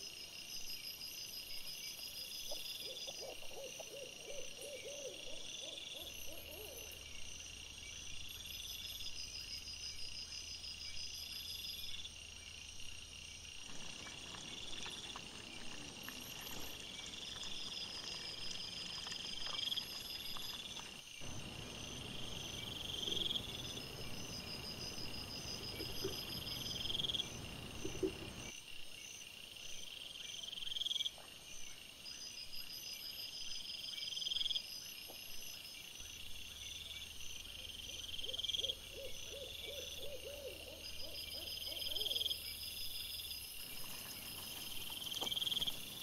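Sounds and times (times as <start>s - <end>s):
insects chirping in pulsed trills: 0.1s - 28.6s.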